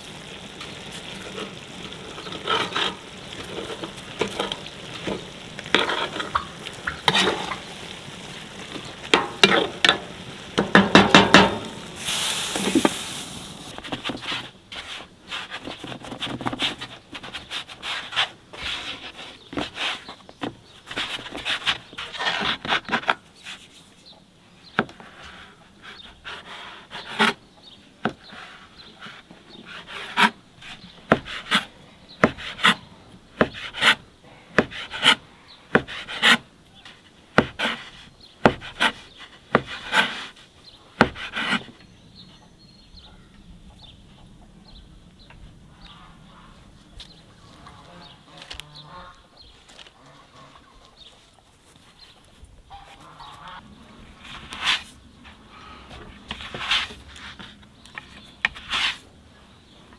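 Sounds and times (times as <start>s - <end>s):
dough rubbing and rolling: 10.6s - 24.0s, 24.8s - 41.8s, 54.1s - 59.1s.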